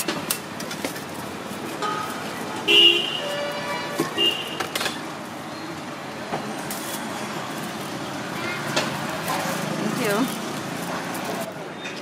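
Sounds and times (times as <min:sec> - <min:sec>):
street traffic: 0:00.0 - 0:12.0
vehicle horn toots: 0:02.7 - 0:04.6.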